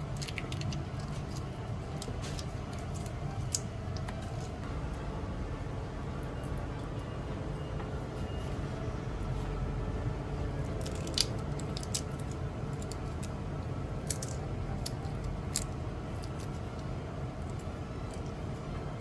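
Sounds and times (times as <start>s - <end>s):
steady low hum: 0.0s - 19.0s
shrimp shells cracking: 0.1s - 3.7s, 10.8s - 13.4s, 14.0s - 16.6s.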